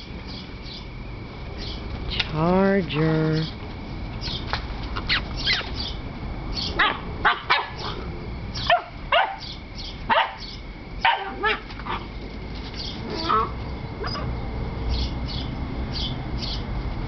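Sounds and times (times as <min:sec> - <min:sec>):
puppies yipping and barking: 0:05.0 - 0:06.0, 0:06.6 - 0:14.4.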